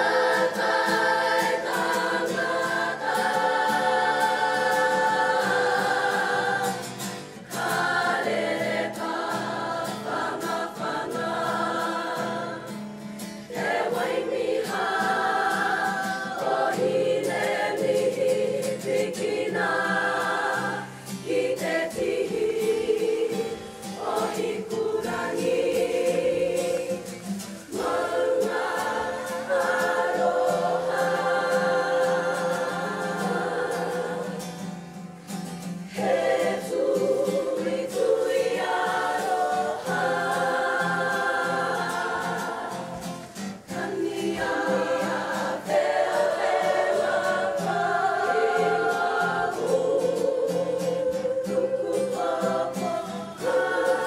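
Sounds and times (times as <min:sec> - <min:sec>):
group singing together: 0:00.0 - 0:54.0.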